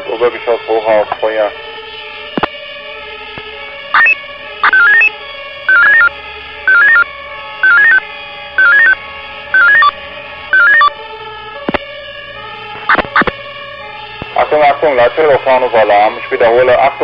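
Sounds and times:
sharp clicks: 0:02.4 - 0:02.6, 0:11.6 - 0:11.9, 0:12.8 - 0:13.4
radio alert beeps: 0:04.0 - 0:05.1, 0:05.7 - 0:06.1, 0:06.7 - 0:08.0, 0:08.6 - 0:09.0, 0:09.6 - 0:10.0, 0:10.6 - 0:10.9, 0:12.9 - 0:13.3
low radio hum: 0:05.7 - 0:06.1, 0:06.7 - 0:07.0, 0:12.8 - 0:13.4.

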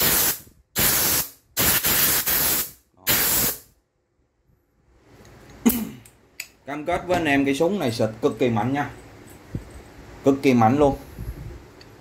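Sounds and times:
compressed air blasts hissing: 0:00.0 - 0:03.8.

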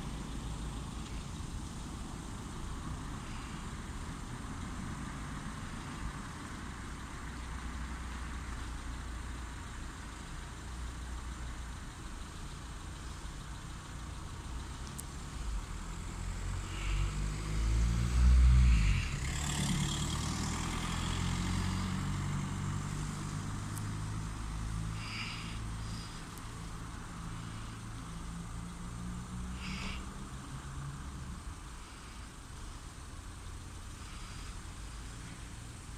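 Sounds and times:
low traffic rumble: 0:00.0 - 0:35.9
car driving past: 0:15.1 - 0:32.2.

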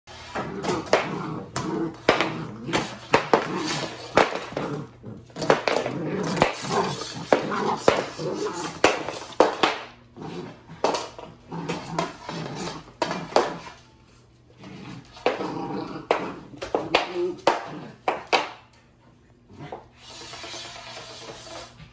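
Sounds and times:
broom scraping hardwood floor: 0:00.1 - 0:09.5, 0:19.6 - 0:21.9.

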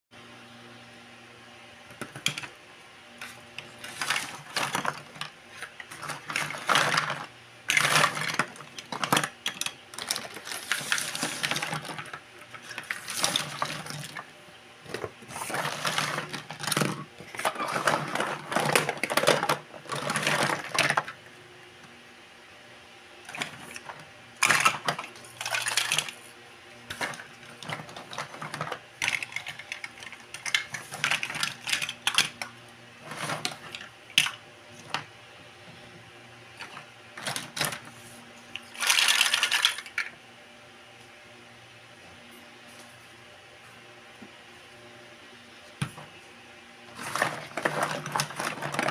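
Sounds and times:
plastic toys clattering: 0:01.9 - 0:02.6, 0:03.2 - 0:21.3, 0:23.3 - 0:26.3, 0:26.9 - 0:35.1, 0:36.6 - 0:40.2, 0:46.9 - 0:48.9.

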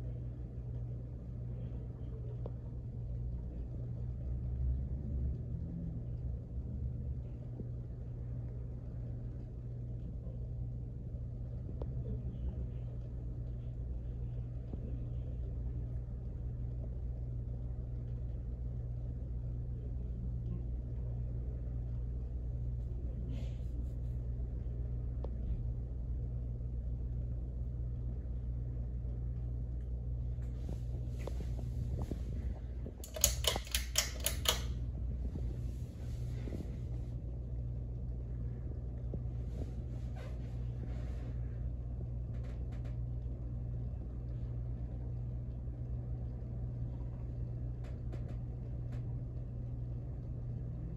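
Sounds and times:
ceiling fan motor hum: 0:00.0 - 0:50.9
loud sharp clicks: 0:33.0 - 0:34.7.

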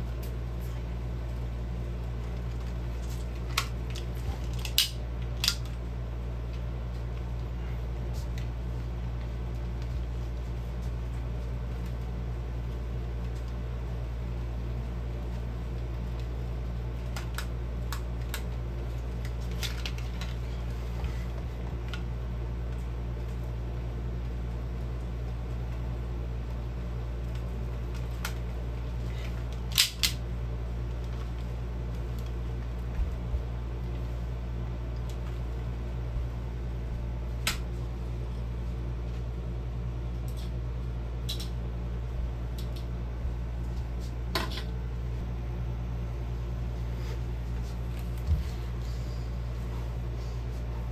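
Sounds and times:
steady low hum: 0:00.0 - 0:50.9
plastic toy pistols clicking: 0:29.7 - 0:30.2.

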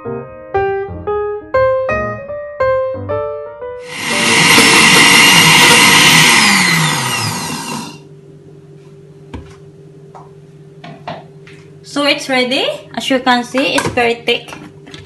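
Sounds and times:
blender running: 0:03.8 - 0:08.1.

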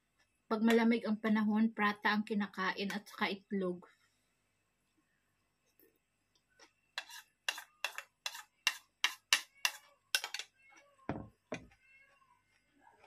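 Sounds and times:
metal spoon scraping a bowl: 0:07.0 - 0:10.5
bowl knocking on plastic table: 0:11.1 - 0:11.8.

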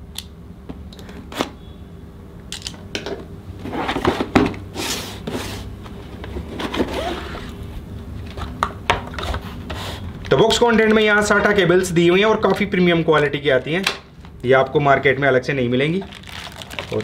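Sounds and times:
cardboard rustling and scraping: 0:03.6 - 0:07.6.

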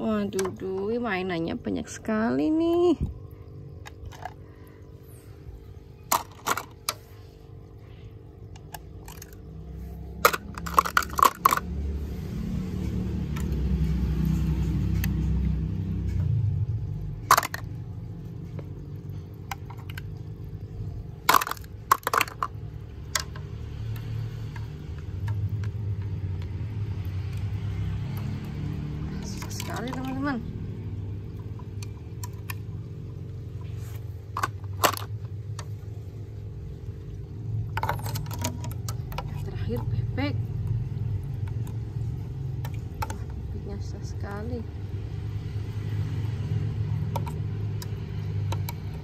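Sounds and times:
plastic toys knocking: 0:10.2 - 0:11.7, 0:17.2 - 0:17.7, 0:21.2 - 0:23.4.

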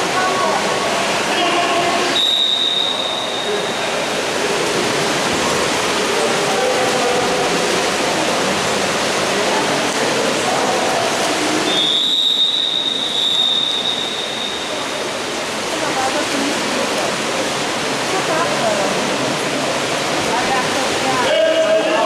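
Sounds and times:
voices and shouts in a hall: 0:00.0 - 0:22.0
high-pitched whistle tone: 0:02.2 - 0:03.6, 0:11.7 - 0:15.0.

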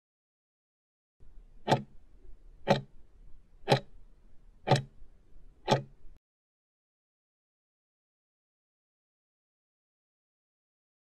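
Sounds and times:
clock-like timer ticks: 0:01.5 - 0:02.0, 0:02.6 - 0:03.0, 0:03.6 - 0:04.0, 0:04.6 - 0:05.0, 0:05.6 - 0:06.2.

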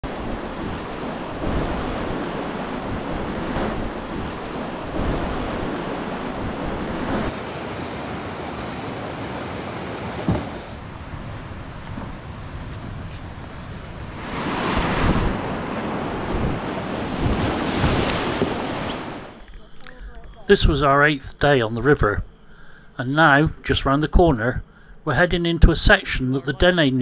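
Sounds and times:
whitewater rapids rushing: 0:07.0 - 0:10.8.

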